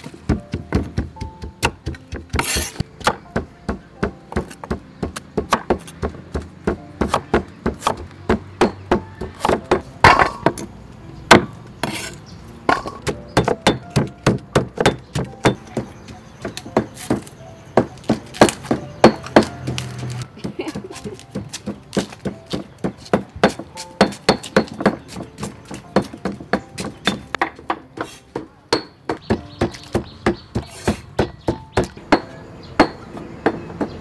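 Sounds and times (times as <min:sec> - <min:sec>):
cleaver chopping on wooden board: 0:00.3 - 0:10.6, 0:11.3 - 0:34.0.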